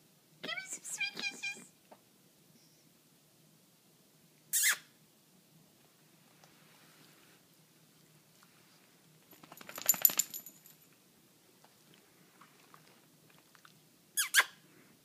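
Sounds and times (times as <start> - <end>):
dog collar tag jingling: 9.3 - 10.8.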